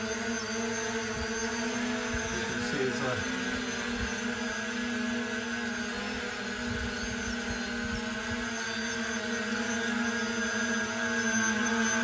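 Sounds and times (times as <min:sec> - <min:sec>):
drone rotors hovering: 0:00.0 - 0:12.0
wind rumbling on microphone: 0:05.9 - 0:08.5.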